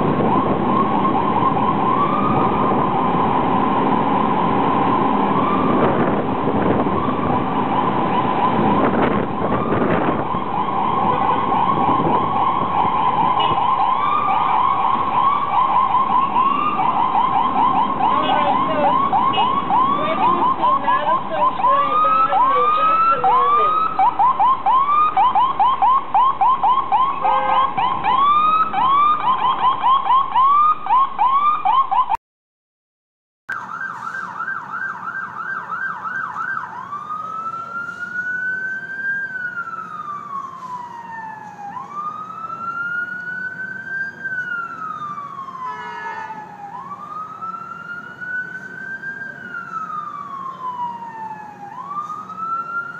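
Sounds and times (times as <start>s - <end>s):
ambulance siren yelping and wailing: 0.0s - 32.2s, 33.5s - 52.9s.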